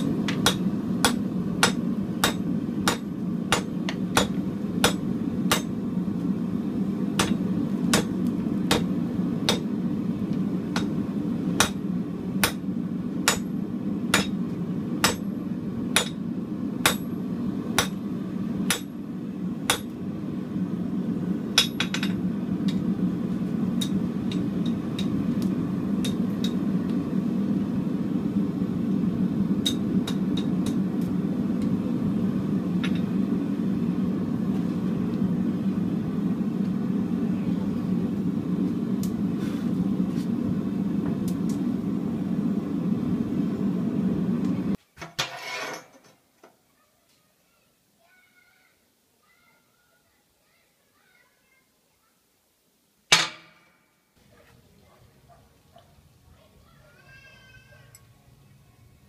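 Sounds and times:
hammer striking metal on anvil: 0.0s - 5.8s, 7.2s - 9.7s, 10.7s - 11.0s, 11.6s - 11.8s, 12.4s - 12.6s, 13.2s - 14.4s, 15.0s - 15.3s, 16.0s - 16.2s, 16.8s - 17.2s, 17.8s - 18.0s, 18.7s - 19.0s, 19.7s - 19.9s, 21.6s - 22.8s, 29.6s - 30.8s, 53.1s - 53.8s
steady low hum: 0.0s - 44.8s.

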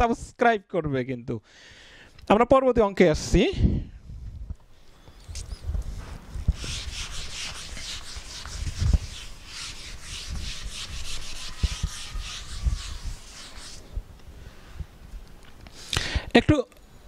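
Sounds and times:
eraser rubbing whiteboard: 5.9s - 13.9s.

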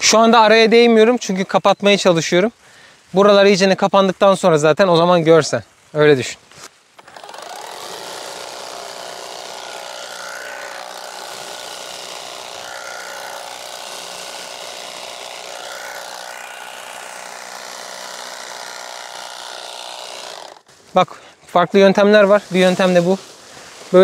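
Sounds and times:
electric shear cutting bushes: 7.0s - 20.7s.

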